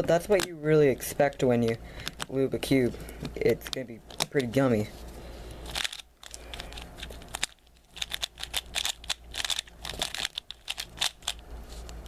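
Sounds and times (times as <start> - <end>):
puzzle cube layers clicking: 6.7 - 11.4.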